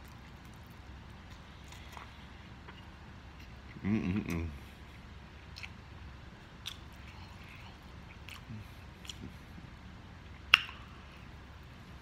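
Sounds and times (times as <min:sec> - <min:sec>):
person chewing noodles: 0:00.0 - 0:09.6
loud mouth smack: 0:10.5 - 0:10.8.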